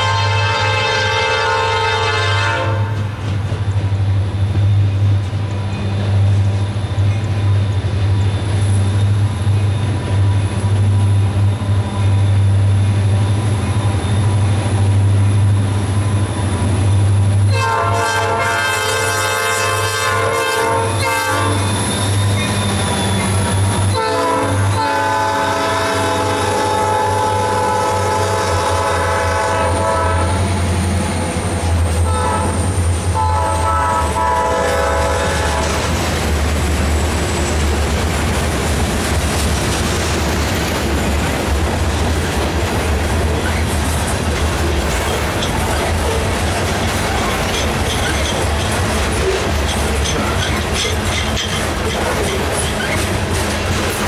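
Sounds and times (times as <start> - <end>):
locomotive air horn blasts: 0.0 - 3.1, 17.5 - 21.8, 23.9 - 30.5, 32.0 - 35.8
freight train passing: 0.0 - 54.0.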